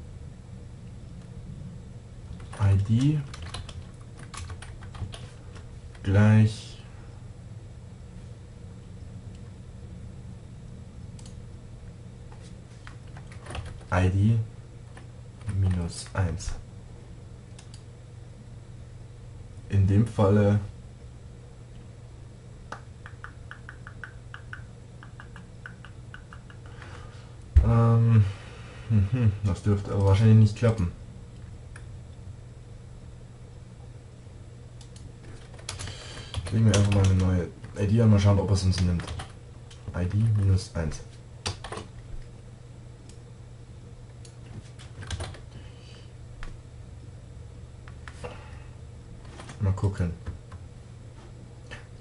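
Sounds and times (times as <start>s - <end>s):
low steady hum: 0.0s - 52.0s
computer keyboard typing: 2.4s - 6.0s, 12.9s - 13.9s, 14.9s - 15.8s, 22.7s - 26.9s, 34.8s - 37.4s, 38.7s - 40.5s, 41.4s - 42.0s, 44.2s - 45.4s
keyboard keystrokes: 22.7s - 26.9s, 34.8s - 37.3s.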